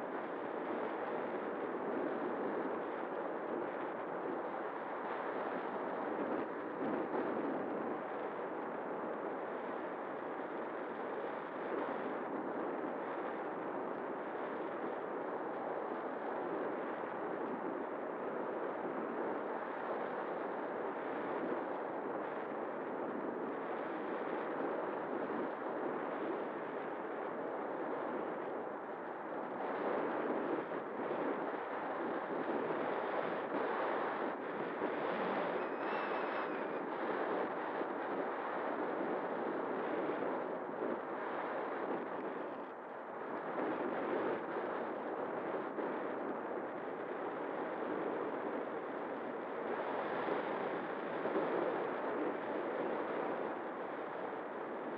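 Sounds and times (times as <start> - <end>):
faint steady hum: 0.0 - 54.9
airflow rushing over microphone: 32.0 - 41.0.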